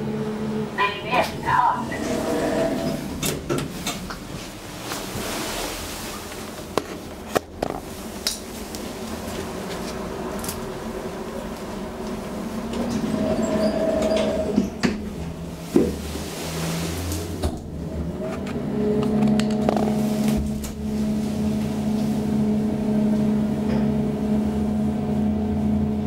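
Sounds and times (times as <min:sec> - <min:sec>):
elevator door motor humming: 0:00.0 - 0:04.3, 0:09.5 - 0:15.6.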